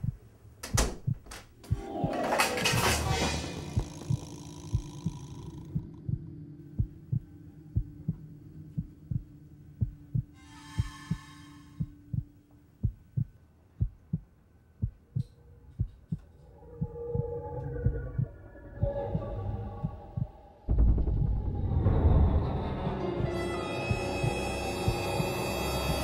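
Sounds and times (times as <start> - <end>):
heartbeat thumps: 0.0 - 2.2, 3.7 - 16.2, 16.8 - 25.2
faint steady drone: 3.1 - 20.8.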